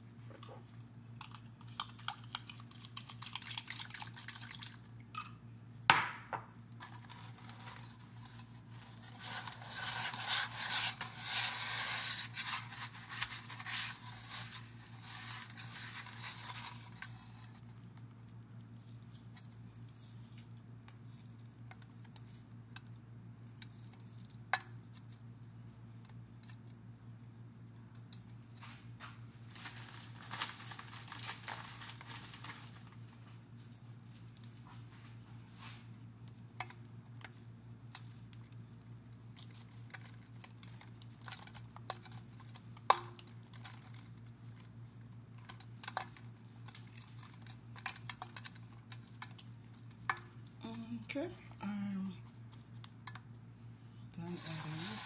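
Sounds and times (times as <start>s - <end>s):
scraping and rustling: 54.3s - 55.0s.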